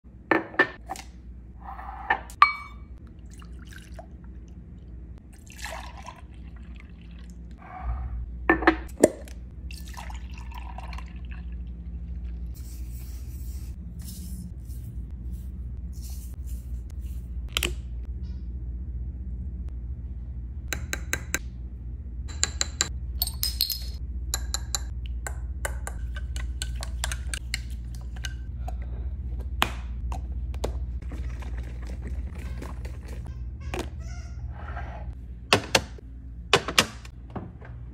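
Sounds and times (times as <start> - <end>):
steady low hum: 0.1 - 37.9
milk pouring: 3.2 - 4.2, 5.4 - 7.4, 9.7 - 12.4
spoon stirring against glass: 25.7 - 28.4.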